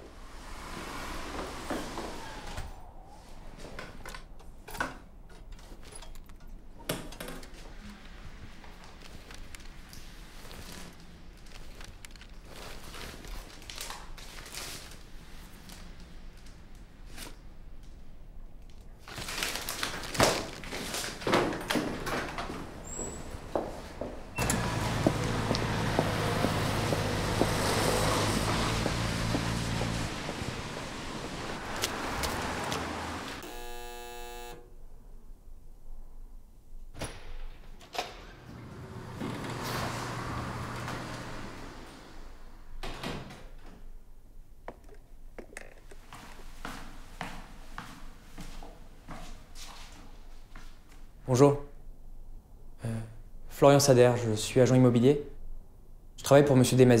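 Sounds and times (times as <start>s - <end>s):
paper rustling: 19.0s - 21.4s
street noise: 22.7s - 34.5s
footsteps on wet pavement: 24.6s - 33.4s
electric doorbell buzzer: 33.4s - 34.7s.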